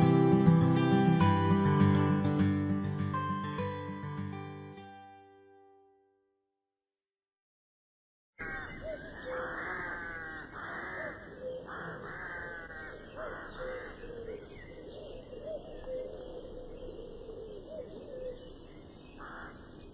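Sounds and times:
crows cawing: 8.4 - 14.4, 19.2 - 19.8.

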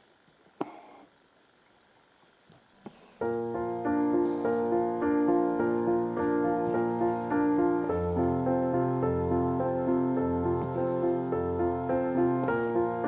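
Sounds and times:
classical instrumental music: 3.2 - 13.0.

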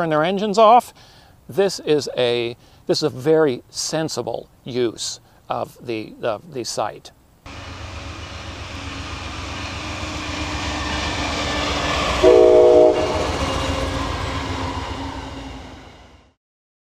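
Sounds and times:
train engine rumble and rolling: 7.5 - 16.4
train horn blast: 12.1 - 14.1.

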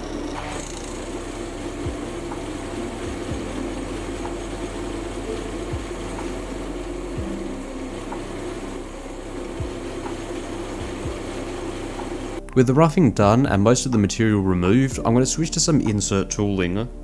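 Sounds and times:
lathe motor and gear hum: 0.0 - 12.4
metal cutting noise: 0.0 - 12.4.

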